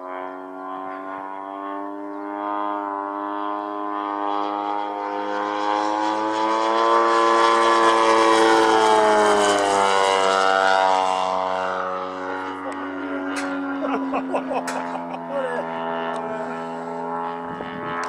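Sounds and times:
model plane engine droning: 0:00.0 - 0:18.0.

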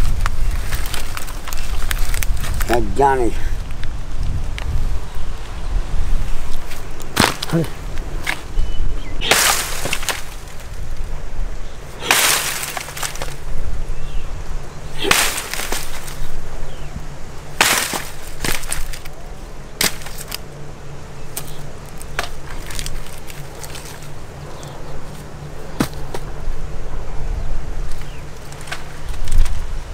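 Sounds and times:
twigs snapping: 0:00.0 - 0:02.8, 0:06.4 - 0:08.6, 0:09.2 - 0:11.1, 0:11.9 - 0:13.6, 0:14.9 - 0:20.6, 0:21.2 - 0:26.4, 0:27.8 - 0:29.8
blade hacking dry brush: 0:09.2 - 0:10.7, 0:12.0 - 0:13.5, 0:15.0 - 0:16.4, 0:17.5 - 0:19.1, 0:19.8 - 0:20.4.

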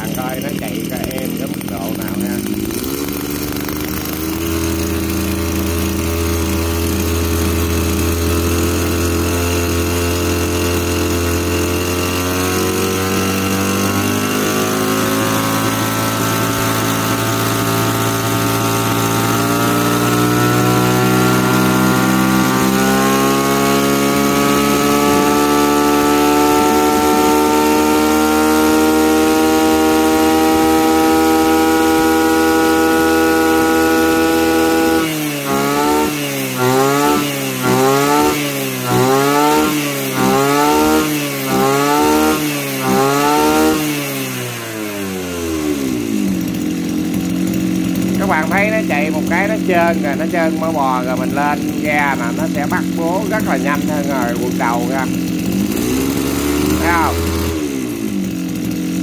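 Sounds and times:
brush cutter engine running: 0:00.0 - 0:59.0.

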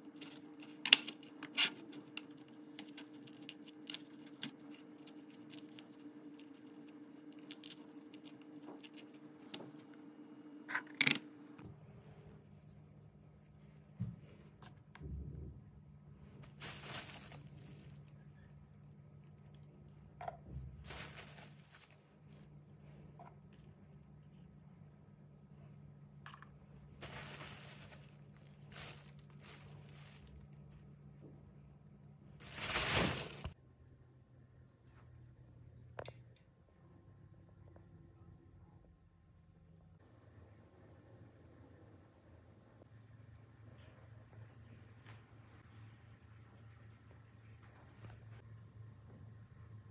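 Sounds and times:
faint low hum: 0:00.0 - 0:49.9
plastic bag crinkling: 0:16.4 - 0:18.2, 0:20.8 - 0:22.1, 0:27.0 - 0:30.8, 0:32.4 - 0:33.6.

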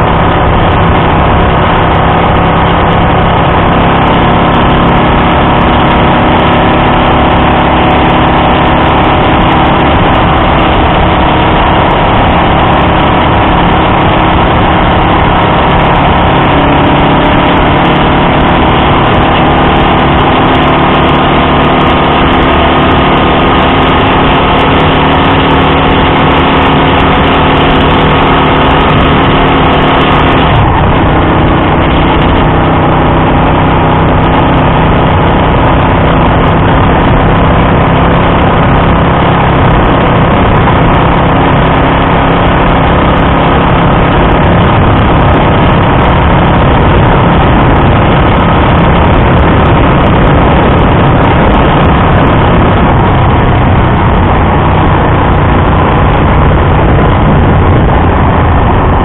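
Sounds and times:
motorcycle engine running: 0:00.0 - 0:59.0
wind noise on microphone: 0:00.0 - 0:59.0.

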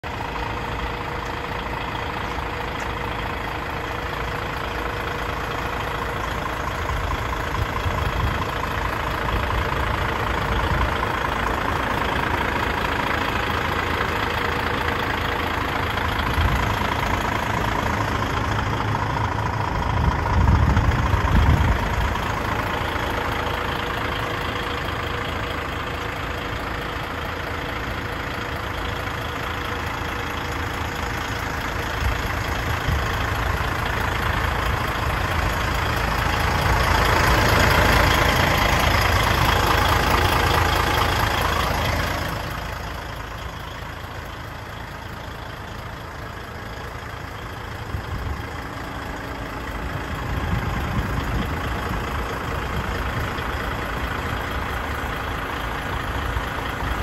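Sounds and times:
diesel engine idling: 0:00.0 - 0:57.0
louder low rumble: 0:16.0 - 0:23.7.

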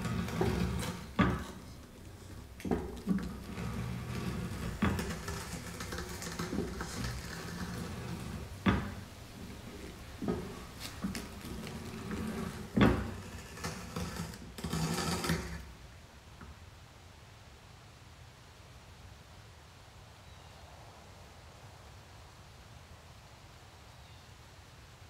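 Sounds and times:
scraping and rustling: 0:00.0 - 0:15.8
low hiss: 0:00.0 - 0:25.0.

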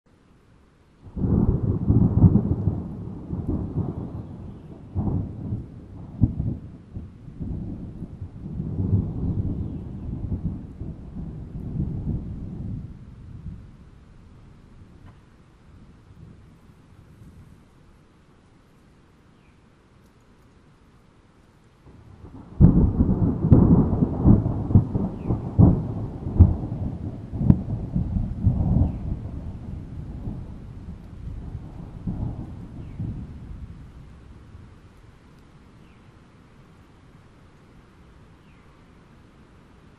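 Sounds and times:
distant thunder rumbling: 0:01.0 - 0:17.7, 0:21.8 - 0:35.0.

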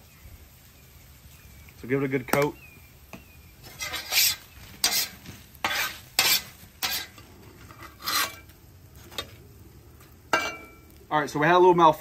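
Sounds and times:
metal spatula scraping griddle: 0:03.6 - 0:09.4, 0:10.3 - 0:10.8.

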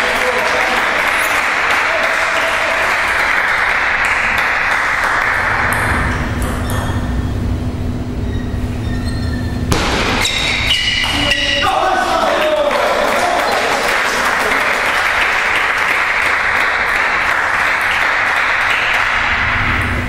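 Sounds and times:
table tennis ball struck: 0:09.7 - 0:11.2.

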